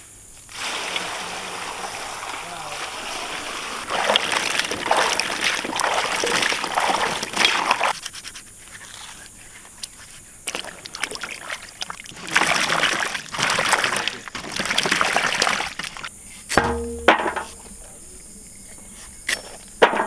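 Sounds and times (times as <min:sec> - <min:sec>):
water sloshing and splashing: 0:00.5 - 0:08.0, 0:10.4 - 0:16.1.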